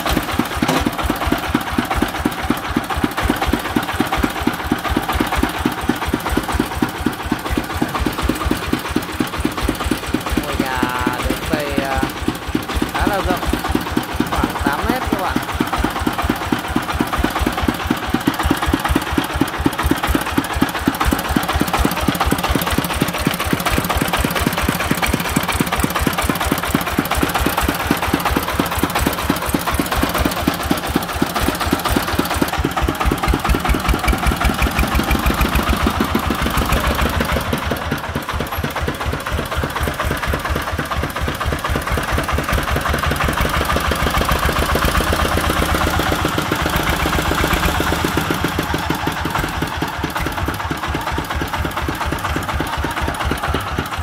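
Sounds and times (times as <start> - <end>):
diesel engine thudding: 0.1 - 3.6.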